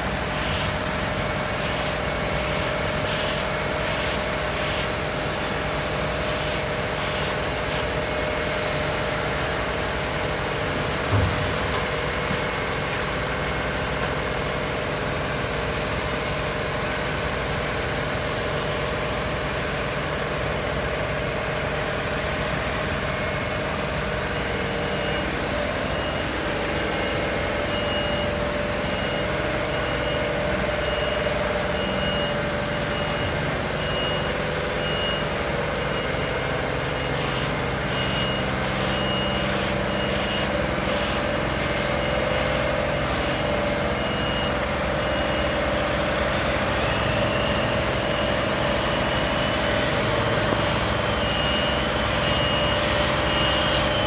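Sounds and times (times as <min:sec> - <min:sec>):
reversing alarm beeping: 0:00.0 - 0:54.0.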